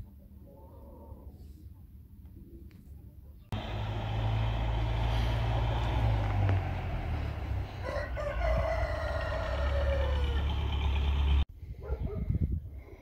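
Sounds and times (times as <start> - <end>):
rooster crowing: 7.7 - 10.8.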